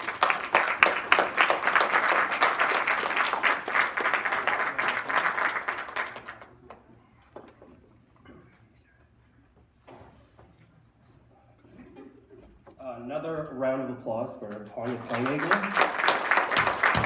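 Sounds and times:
audience applauding: 0.0 - 6.8, 14.8 - 17.0.

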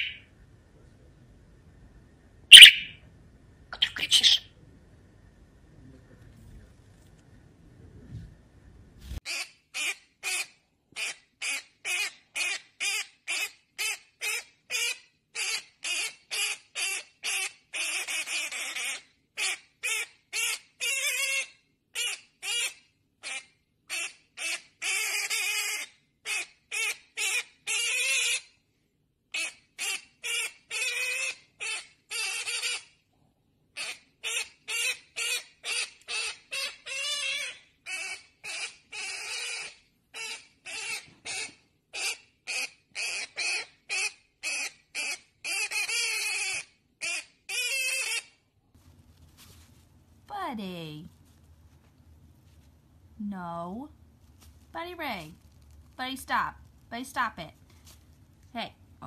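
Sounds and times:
conure screeching: 0.0 - 0.2, 2.5 - 3.0, 33.8 - 48.4.

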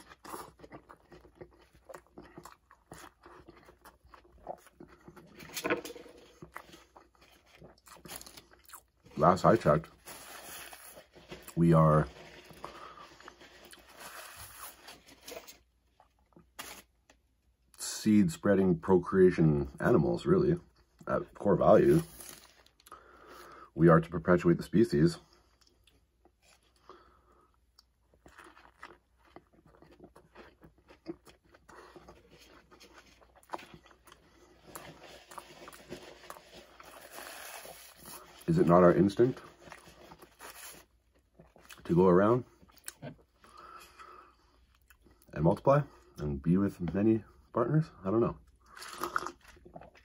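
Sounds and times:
close chewing with wet smacks: 0.0 - 5.4
crackly chewing mouth noises: 0.0 - 5.6, 25.4 - 38.5, 39.2 - 45.4.

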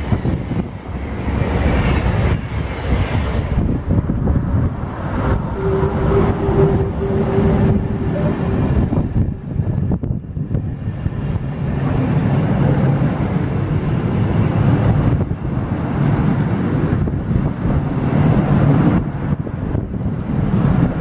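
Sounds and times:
train wheels rumbling on rails: 0.0 - 21.0
steady tone: 4.0 - 10.5.

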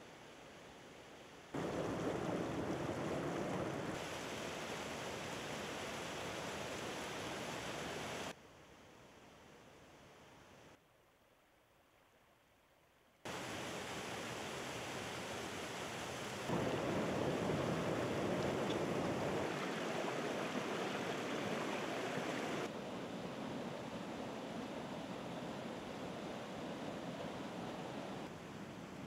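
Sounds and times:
stream and waterfall rushing: 1.3 - 8.4, 13.3 - 29.0.

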